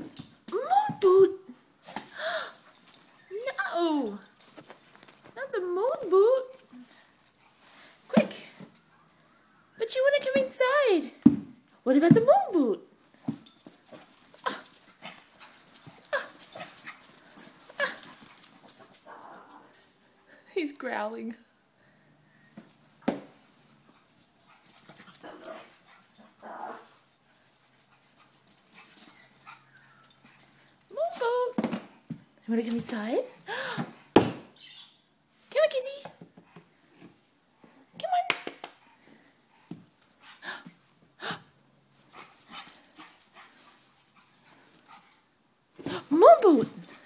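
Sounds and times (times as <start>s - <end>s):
small dog growling: 19.1s - 19.8s, 26.4s - 26.9s.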